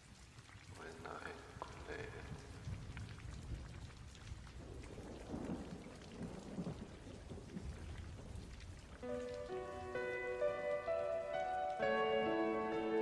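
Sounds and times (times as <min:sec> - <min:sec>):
faint rain falling: 0:00.0 - 0:13.0
low thunder rumble: 0:02.2 - 0:09.0
music with held notes: 0:09.0 - 0:13.0.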